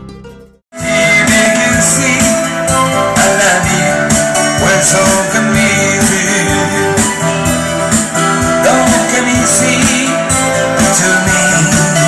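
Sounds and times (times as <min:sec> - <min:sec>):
steady beat: 0:00.7 - 0:12.0
electric guitars: 0:00.8 - 0:12.0.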